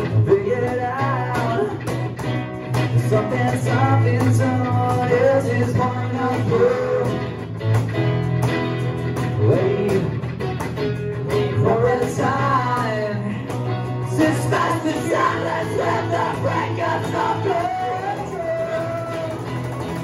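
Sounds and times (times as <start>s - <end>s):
person singing into a microphone: 0.0s - 2.0s, 2.9s - 7.4s, 9.4s - 10.2s, 11.5s - 19.6s
electric guitars playing rock: 0.0s - 20.0s.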